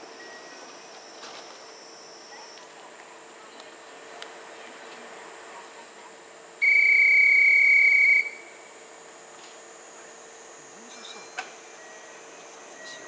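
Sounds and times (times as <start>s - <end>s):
railway whistle blast: 6.6s - 8.5s.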